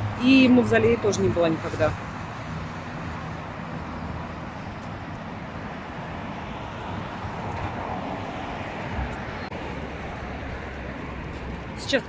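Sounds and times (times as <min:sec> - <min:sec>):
city road traffic hum: 0:00.0 - 0:12.0
wind on microphone: 0:04.9 - 0:10.5.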